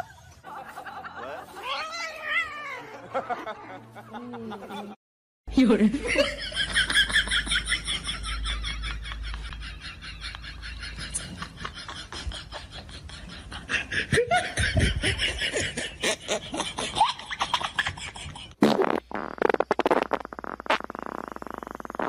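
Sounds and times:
people laughing: 0.0s - 5.0s, 5.9s - 18.6s.

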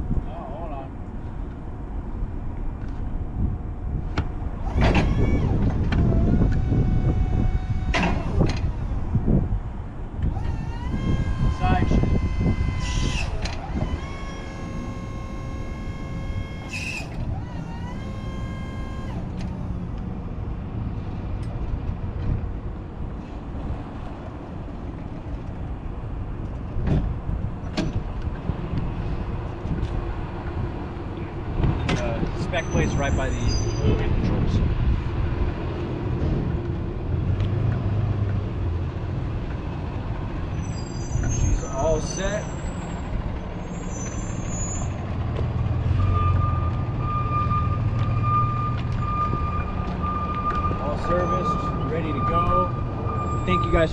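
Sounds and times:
electric reach truck rumble: 4.4s - 25.0s, 27.1s - 53.9s
vehicle backup alarm beeping: 5.0s - 9.2s, 10.4s - 20.1s, 45.9s - 53.9s.

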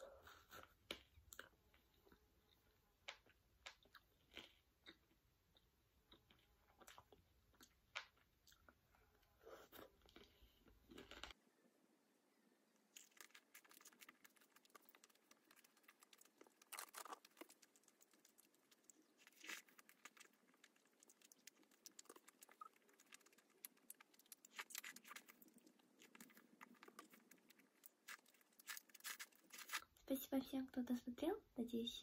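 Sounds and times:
chewing crunchy fried food: 0.5s - 11.4s, 12.8s - 29.9s.

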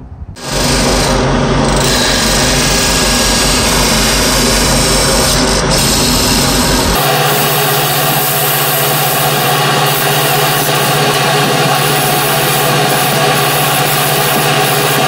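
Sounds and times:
lathe motor hum: 0.4s - 15.0s
turning tool scraping wood: 0.4s - 15.0s.

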